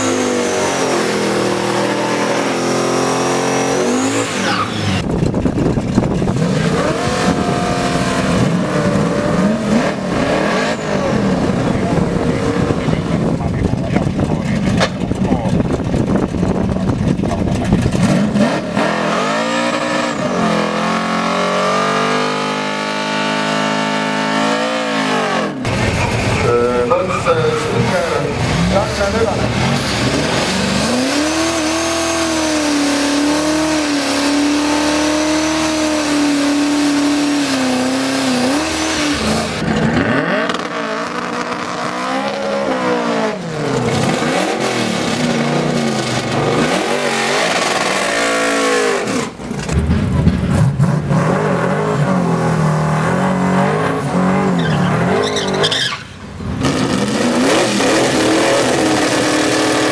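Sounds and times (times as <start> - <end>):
car engines revving: 0.0 - 59.9
tyre squeal: 3.5 - 5.0, 54.3 - 56.2.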